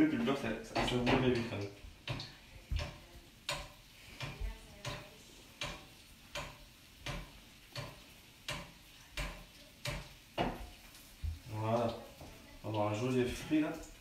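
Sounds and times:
hot oil sizzling: 0.0 - 14.0
metal spoon knocking on frying pan: 0.7 - 10.8.

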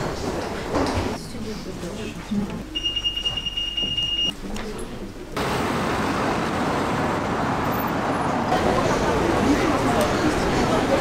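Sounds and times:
city street traffic: 3.9 - 11.0.

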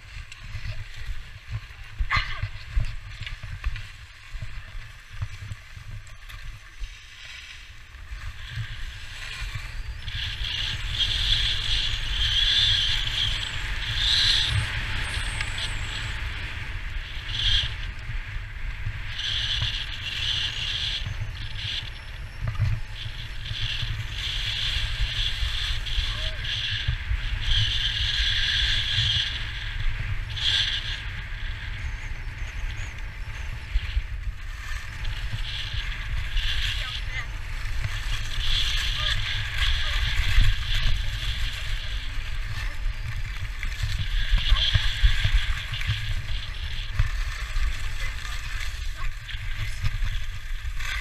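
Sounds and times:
wind rumbling on microphone: 0.0 - 51.0
skis hissing over snow: 32.4 - 51.0.

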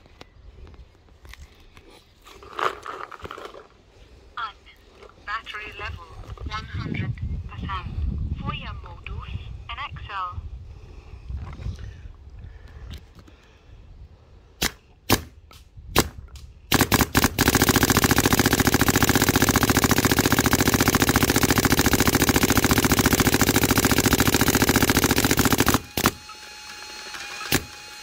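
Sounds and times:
paintball marker firing: 14.6 - 26.2.

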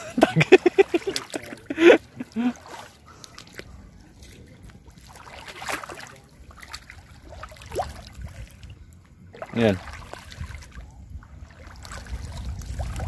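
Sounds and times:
shallow water sloshing around wading: 0.0 - 13.0
low steady rumble: 6.2 - 13.0.

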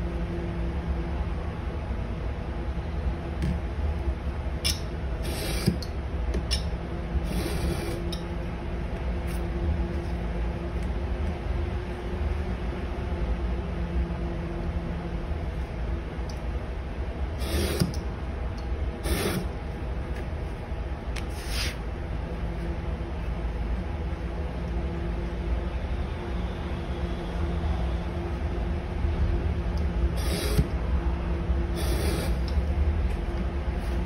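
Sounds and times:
low background hum: 0.0 - 34.0
blade cutting leather: 7.2 - 8.2, 19.0 - 19.5, 30.2 - 30.7, 31.8 - 32.6.

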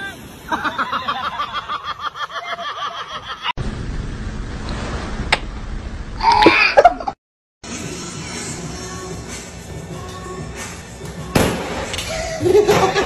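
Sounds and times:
steady hiss: 0.0 - 2.4
person laughing: 0.5 - 3.5, 6.3 - 7.2, 12.1 - 13.0.

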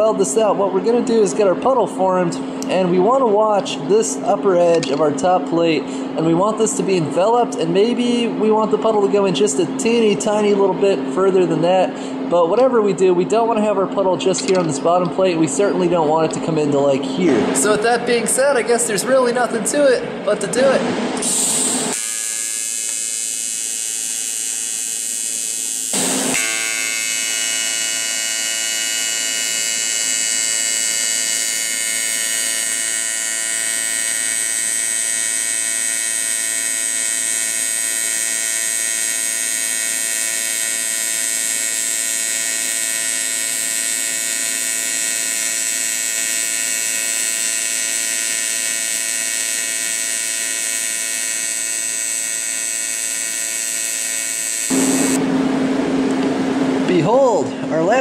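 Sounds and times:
welding arc buzzing: 17.6 - 56.9
welding arc crackle: 20.6 - 55.2.

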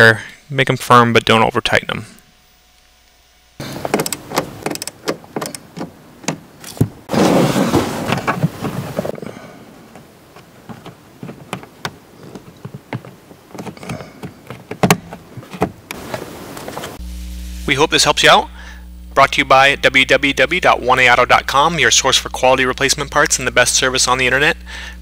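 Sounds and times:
plastic rubbing scrape: 7.1 - 9.2.

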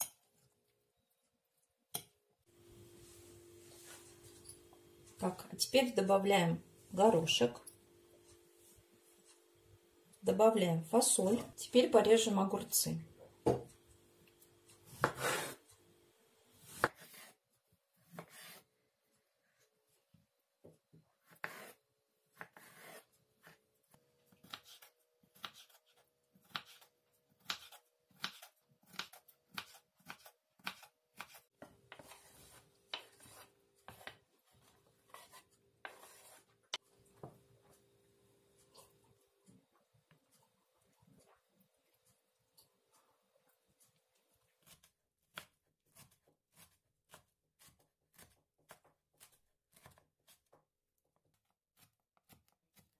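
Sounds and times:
knife chopping on wooden board: 14.9 - 15.6, 16.7 - 17.3, 26.4 - 34.2.

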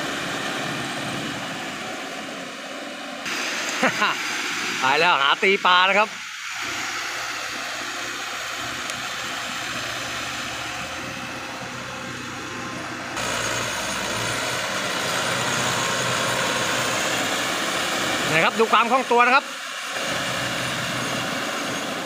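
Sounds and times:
tractor diesel engine running: 0.0 - 22.0.

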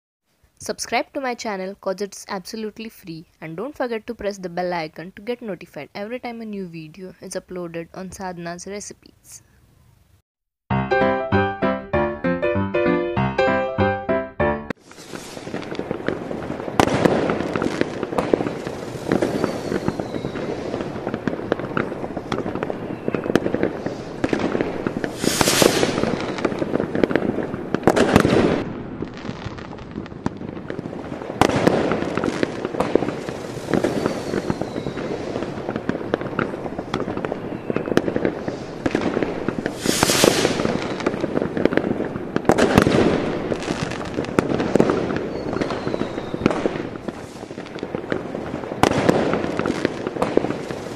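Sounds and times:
fireworks crackling and popping: 14.7 - 50.9
loud firework bang: 14.8 - 48.2, 48.8 - 50.9.

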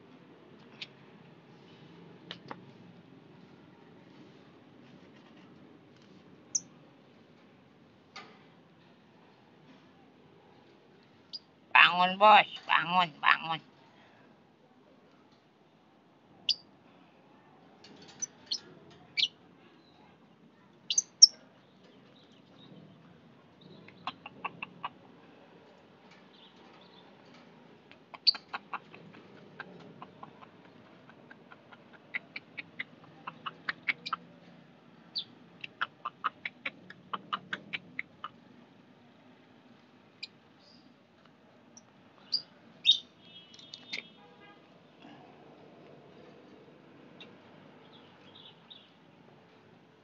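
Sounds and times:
lovebirds chirping: 42.2 - 44.2.

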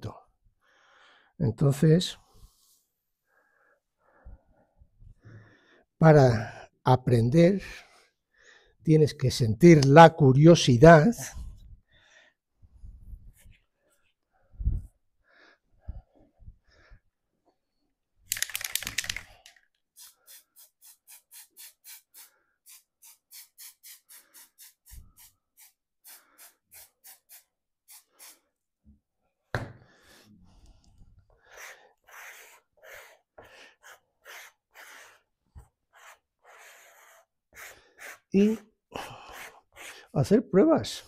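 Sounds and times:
scraping strokes on paper: 31.5 - 40.2.

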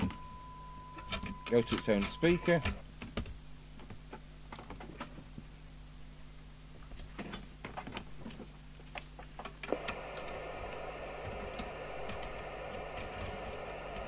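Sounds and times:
faint low hum: 0.0 - 14.0
radio receiver hiss: 1.0 - 2.8, 9.7 - 14.0.

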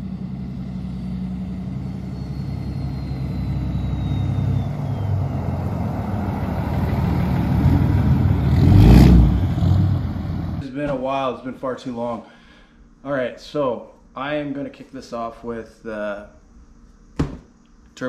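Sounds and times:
diesel truck engine rumble: 0.0 - 10.6.

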